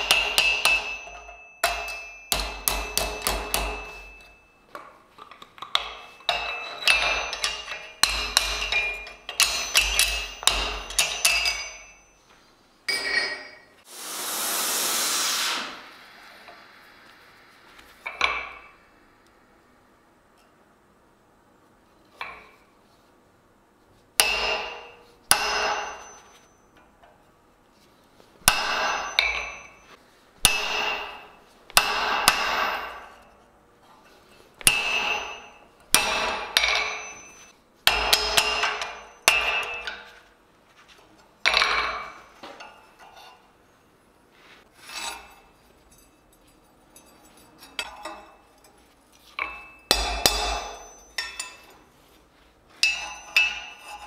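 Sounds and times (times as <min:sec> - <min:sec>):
hammer striking metal on anvil: 0:00.0 - 0:04.6, 0:05.8 - 0:12.3, 0:18.0 - 0:18.9, 0:24.2 - 0:26.7, 0:28.4 - 0:33.4, 0:34.6 - 0:40.2, 0:49.4 - 0:51.8, 0:52.8 - 0:54.0.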